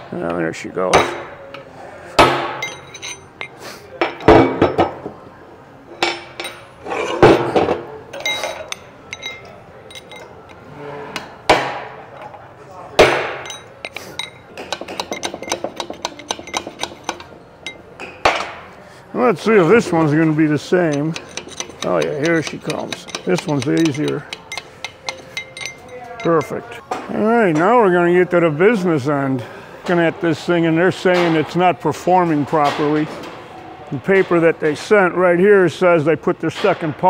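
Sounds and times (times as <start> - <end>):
hammer striking steel punch: 13.0 - 13.7.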